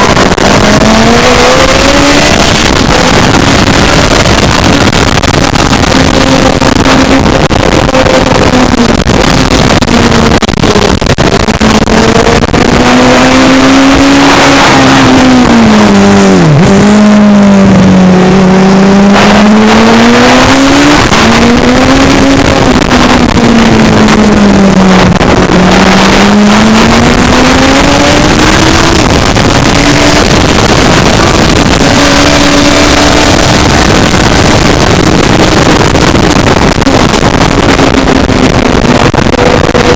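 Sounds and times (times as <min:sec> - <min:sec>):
racing engine revving: 0:00.0 - 0:39.9
wind noise on microphone: 0:00.0 - 0:39.9.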